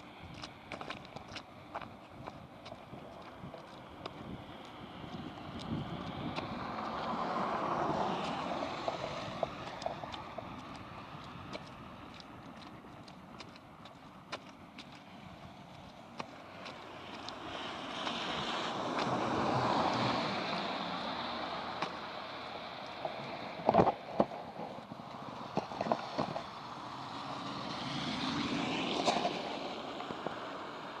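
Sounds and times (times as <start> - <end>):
boots sloshing through water: 0.0 - 22.0.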